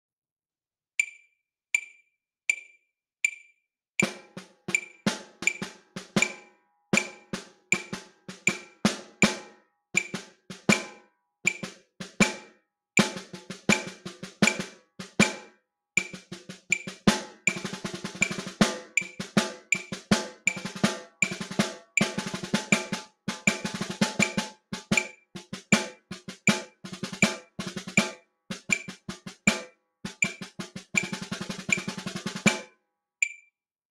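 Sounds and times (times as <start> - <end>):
drumsticks clicking: 1.0 - 3.5, 4.7 - 5.6, 10.0 - 10.2, 16.0 - 16.9, 19.0 - 19.9
snare wires rattling: 1.0 - 5.6, 16.0 - 21.6
snare drum strokes: 4.0 - 32.7.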